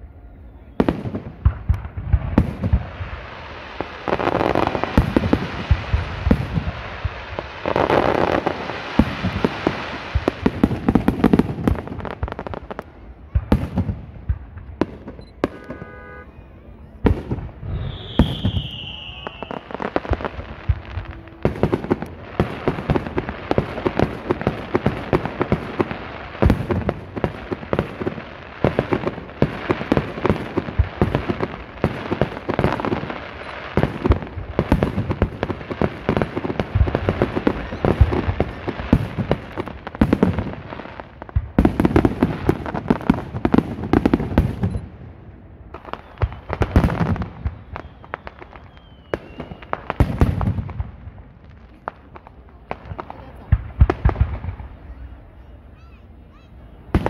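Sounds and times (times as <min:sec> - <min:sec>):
falling firework whistle: 0:00.0 - 0:01.7, 0:15.1 - 0:22.9, 0:32.6 - 0:34.8, 0:36.7 - 0:39.1, 0:45.7 - 0:50.5
firework crackling: 0:00.0 - 0:57.0
firework booms: 0:00.6 - 0:44.9, 0:45.7 - 0:55.2.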